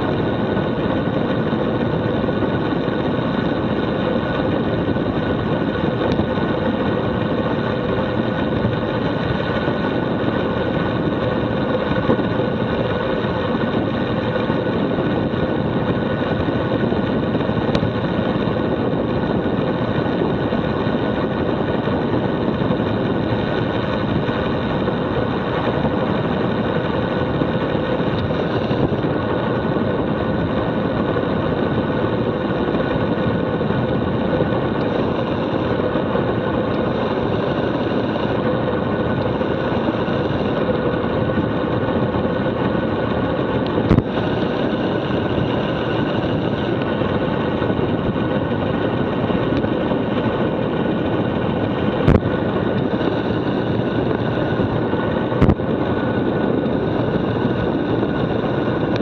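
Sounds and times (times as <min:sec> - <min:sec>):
faint steady hum: 0:00.0 - 0:59.0
wind rush on fast bicycle: 0:00.0 - 0:59.0.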